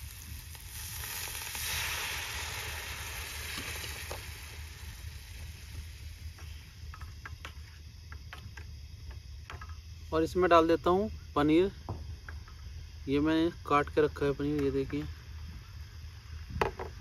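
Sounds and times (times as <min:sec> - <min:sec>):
masala sizzling in a pan: 0:00.0 - 0:07.8.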